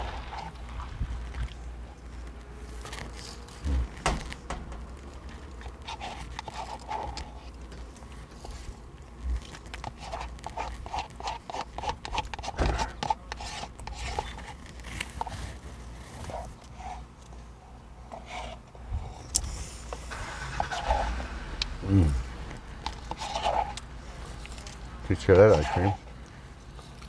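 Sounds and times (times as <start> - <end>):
eating and slurping mouth sounds: 19.2 - 27.0.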